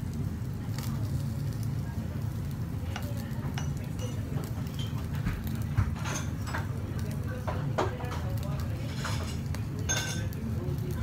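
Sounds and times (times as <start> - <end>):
restaurant background hum: 0.0 - 11.0
chopsticks clinking on ceramic dishes: 8.9 - 10.4.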